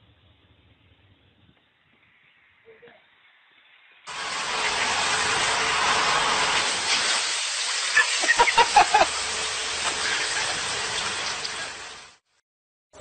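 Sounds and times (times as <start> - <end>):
wheel loader rushing noise: 4.1 - 12.1.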